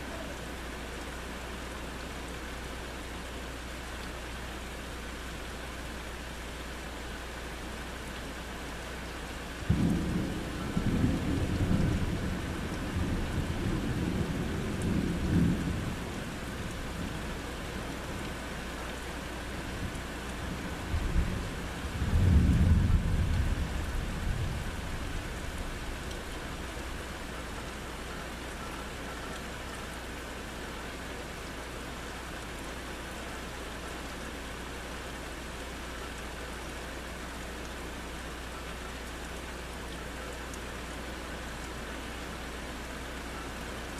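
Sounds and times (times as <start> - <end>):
rain hiss: 0.0 - 43.9
thunder rumbling: 9.7 - 17.3, 20.9 - 26.3.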